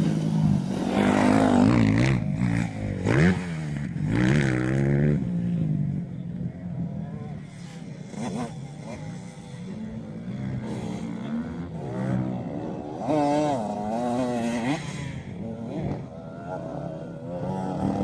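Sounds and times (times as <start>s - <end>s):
motocross bike engines revving: 0.0s - 18.0s.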